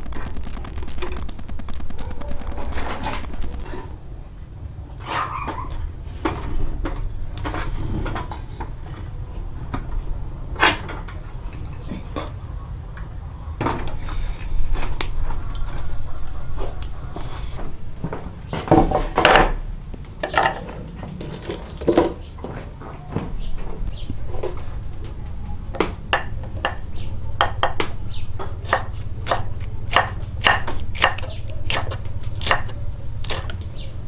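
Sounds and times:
low hum: 0.0 - 4.9.

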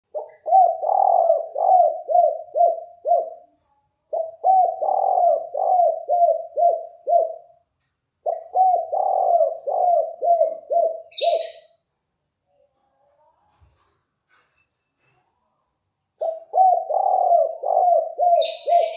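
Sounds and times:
dove cooing: 0.1 - 3.5, 4.1 - 7.6, 8.2 - 11.7, 16.2 - 18.9.

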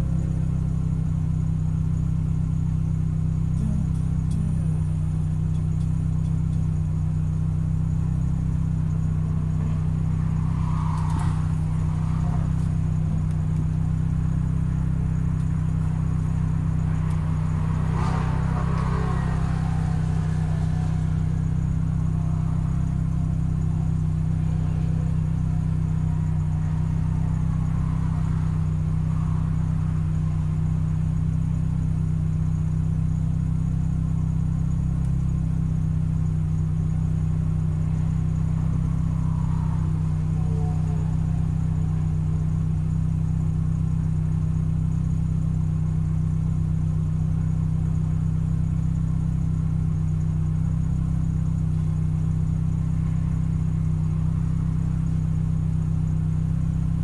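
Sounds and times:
car engine idling: 0.0 - 57.0.

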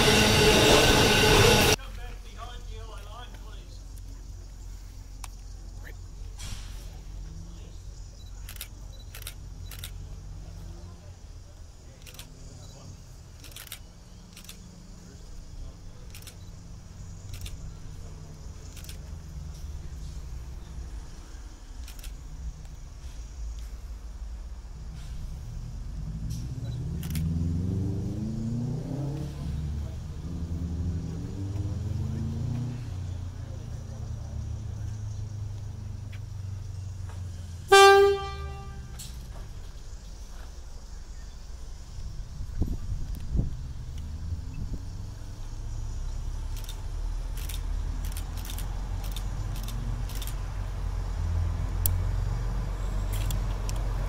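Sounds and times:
diesel engine revving: 0.0 - 2.9, 13.3 - 39.7, 41.9 - 54.0
sharp metallic clicks: 8.3 - 10.0, 12.0 - 12.4, 13.4 - 14.7, 16.0 - 16.6, 17.2 - 17.7, 18.7 - 19.1, 21.8 - 22.8, 26.3 - 27.4, 46.5 - 50.4, 53.1 - 54.0.

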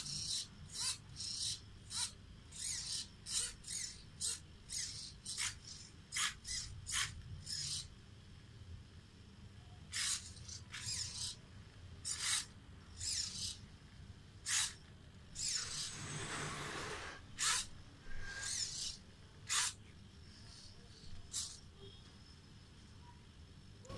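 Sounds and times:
micro servos whirring: 0.0 - 7.9, 9.9 - 11.4, 12.0 - 13.6, 14.4 - 21.7.

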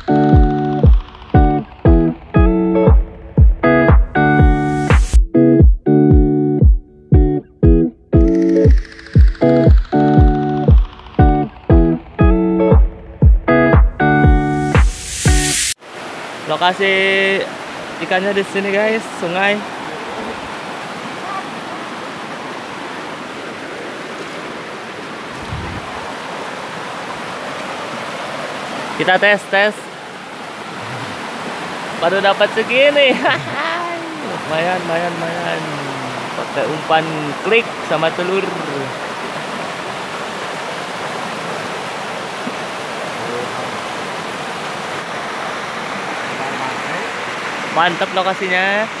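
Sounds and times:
river rushing over rocks: 15.8 - 49.0.

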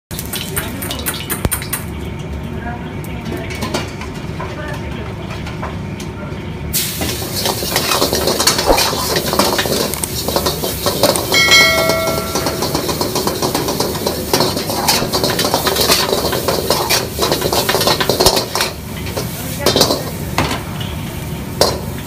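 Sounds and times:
food sizzling in hot oil: 0.1 - 4.2, 6.7 - 22.0
gas burner rushing: 6.7 - 22.0
metal ladle scraping wok: 7.1 - 20.0.

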